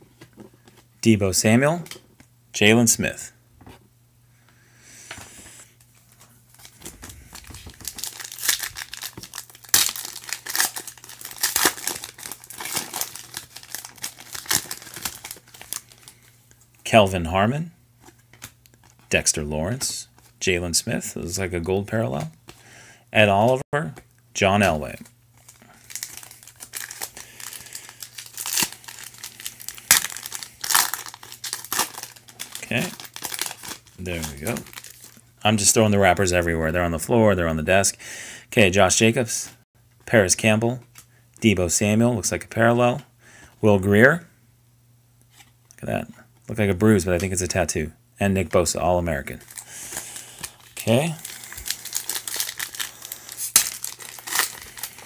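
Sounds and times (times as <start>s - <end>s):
foil wrapper crinkling: 6.5s - 16.3s, 25.3s - 35.2s, 49.4s - 55.0s
foil ripping: 6.9s - 16.1s, 25.8s - 35.2s, 50.4s - 55.0s.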